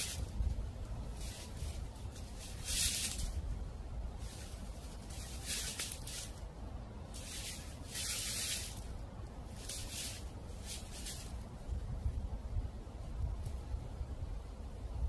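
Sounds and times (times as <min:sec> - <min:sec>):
footsteps crunching dry leaves: 0:00.0 - 0:00.4, 0:01.0 - 0:03.4, 0:04.2 - 0:06.4, 0:07.1 - 0:08.9, 0:09.5 - 0:11.4
low rumble of wind: 0:00.0 - 0:15.0.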